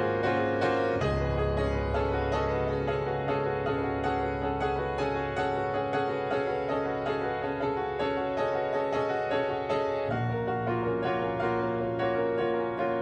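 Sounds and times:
low piano bass note: 0.0 - 7.9
piano repeated chords: 0.0 - 13.0.

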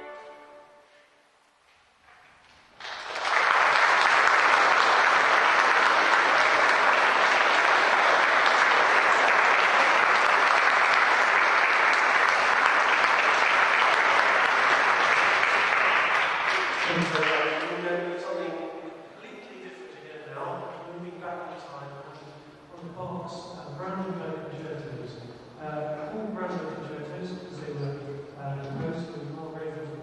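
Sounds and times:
audience applause: 2.7 - 17.9.

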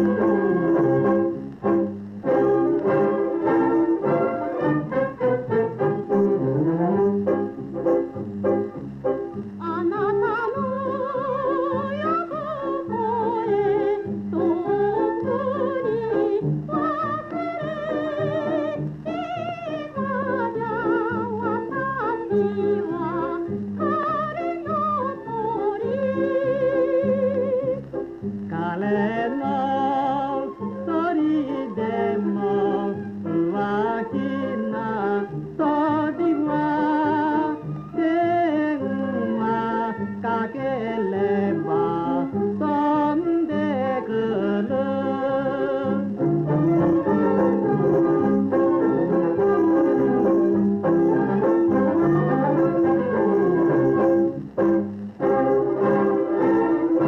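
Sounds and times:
small orchestra accompaniment: 0.0 - 57.0
person singing with vibrato: 9.6 - 27.8, 28.5 - 46.2.

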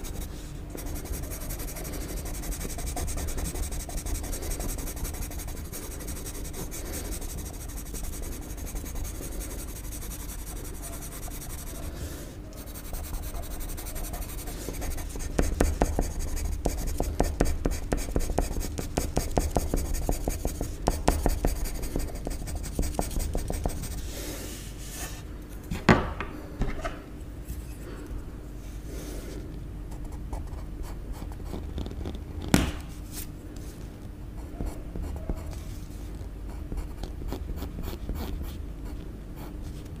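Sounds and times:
pencil scratching on paper: 0.0 - 11.9, 12.6 - 24.0.

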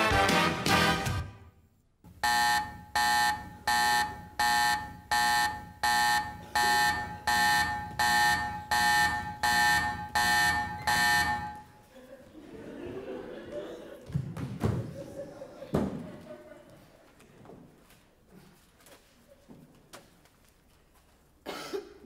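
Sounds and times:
music: 0.0 - 1.6
electronic alarm buzzer pulses: 2.1 - 11.7.

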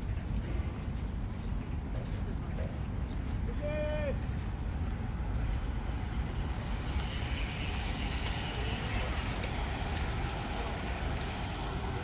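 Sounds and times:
even hiss: 5.4 - 9.5.

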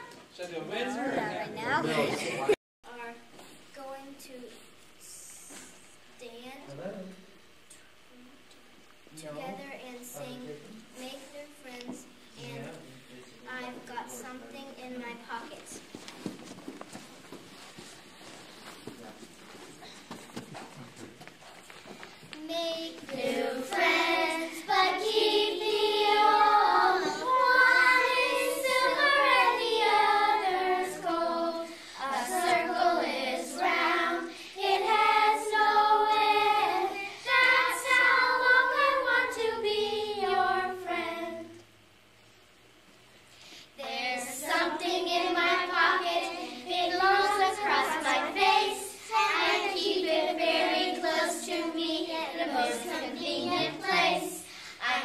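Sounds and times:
girls singing unaccompanied: 22.4 - 41.7, 43.8 - 55.0.

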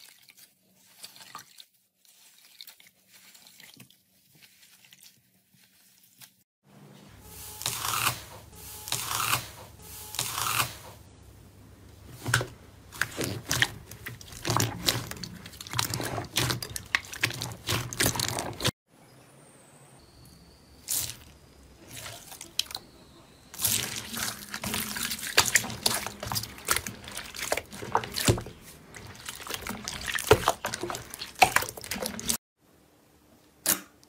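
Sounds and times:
slime squishing: 12.1 - 18.7, 23.6 - 32.4.

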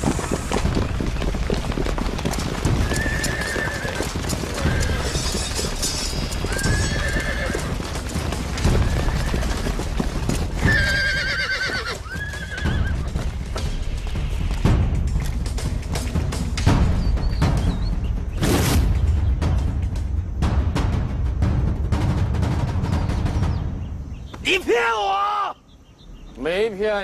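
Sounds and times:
horse hooves clattering: 0.0 - 24.6
horse whinnies: 2.7 - 8.0, 8.6 - 13.2.

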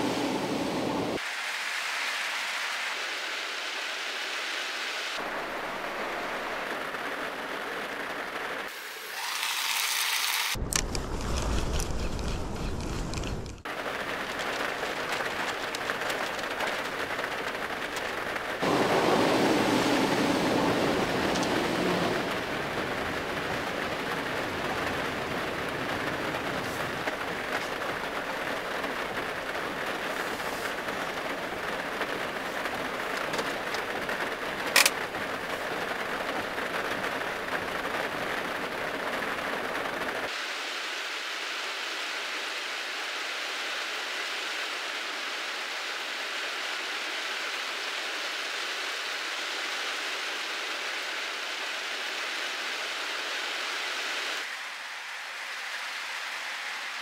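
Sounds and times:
heavy rain on vehicle roof: 5.1 - 8.7, 13.6 - 40.4.

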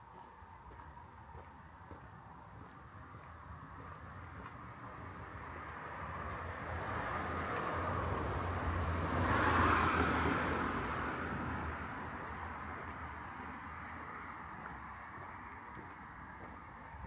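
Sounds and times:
vehicle passing by: 3.7 - 17.0.

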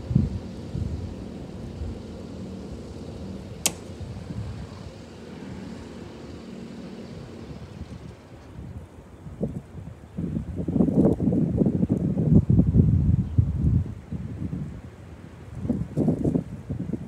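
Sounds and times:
distant diesel engine running: 0.0 - 8.8
sharp click: 3.6 - 4.1.

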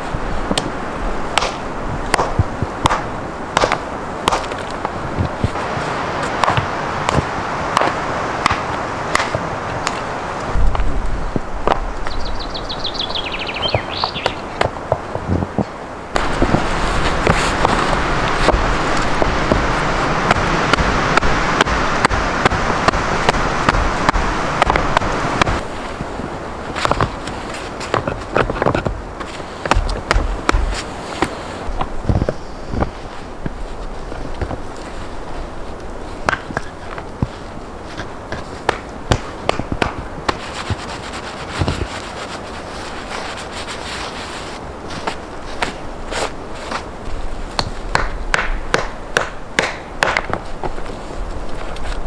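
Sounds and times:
steady rushing noise: 0.0 - 52.0
stones knocking together: 1.4 - 5.6, 6.3 - 10.0, 20.3 - 26.1, 26.7 - 34.7, 36.2 - 42.4
stones clacking together: 26.7 - 34.6.

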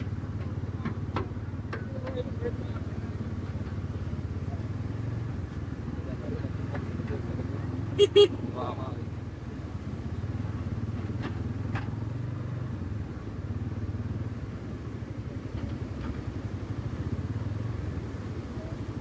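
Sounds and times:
vehicle engine pulsing drone: 0.0 - 19.0.

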